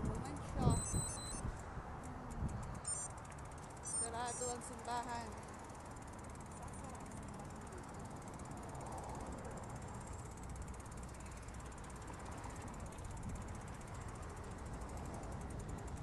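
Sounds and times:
wind on microphone: 0.0 - 3.1
fast even ticking: 0.0 - 16.0
bike tyres rumbling on path: 5.5 - 16.0.

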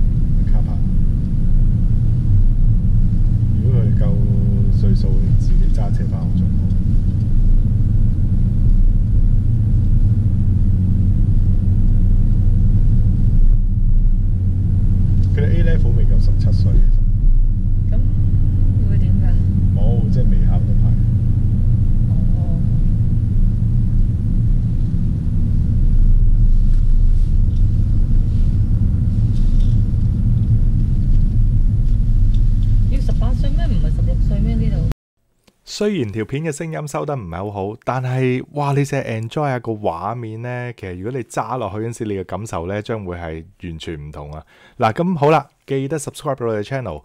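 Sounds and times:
car engine rumble from inside: 0.0 - 34.9
tyre noise on the road: 0.0 - 34.9.

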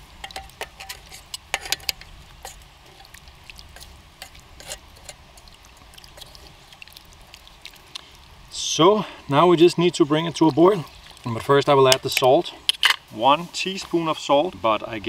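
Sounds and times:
stew pot sizzling and stirred: 0.0 - 15.0.

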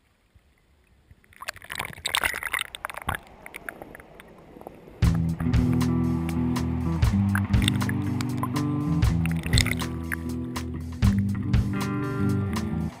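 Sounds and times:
water sloshing and gurgling: 0.2 - 11.7
bubbly clicks and splashes: 1.1 - 5.9, 7.0 - 10.3
background music: 5.0 - 13.0.

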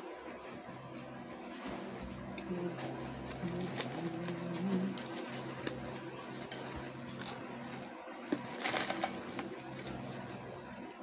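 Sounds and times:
steady low hum: 0.0 - 11.0
chip can and foil crinkling: 2.6 - 10.6.

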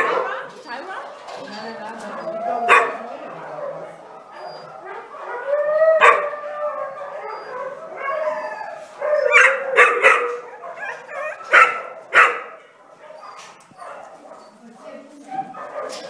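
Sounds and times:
dog barks: 0.0 - 0.5, 2.7 - 3.2, 6.0 - 6.3, 9.3 - 16.0
dogs howling and whining: 0.0 - 16.0.

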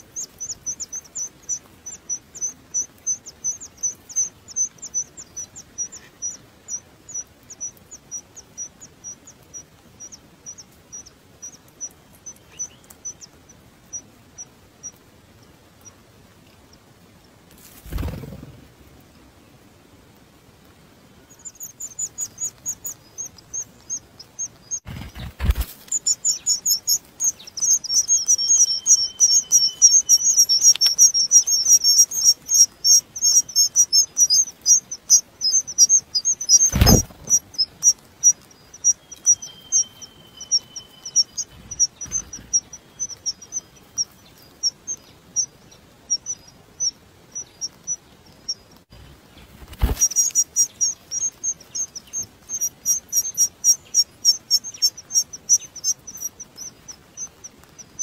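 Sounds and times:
nestlings cheeping: 0.0 - 14.9, 17.7 - 18.7, 21.2 - 58.0
sharp thumps: 36.7 - 37.4.

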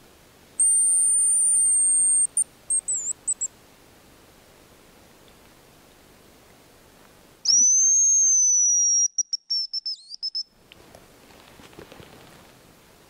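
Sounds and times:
high decoy whistle with trill: 0.6 - 3.5, 7.4 - 10.5
faint rustling: 10.6 - 12.8.

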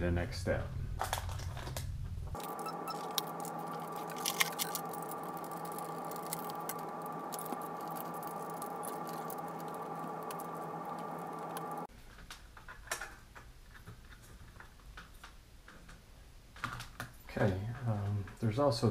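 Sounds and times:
faint hum: 0.0 - 11.9.

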